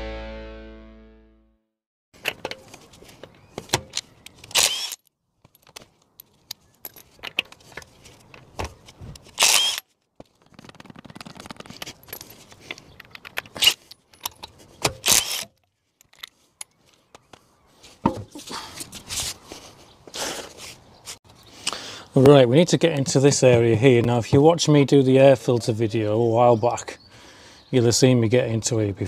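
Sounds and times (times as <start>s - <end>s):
impact wrench bursts: 4.5s - 5.0s, 9.4s - 9.8s.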